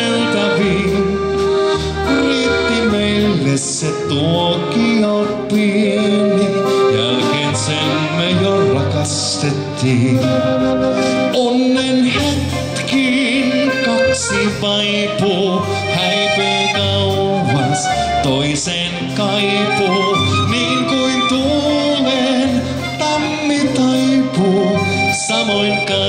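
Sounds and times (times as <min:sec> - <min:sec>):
accordion: 0:00.0 - 0:26.0
live dance-band music: 0:00.0 - 0:26.0.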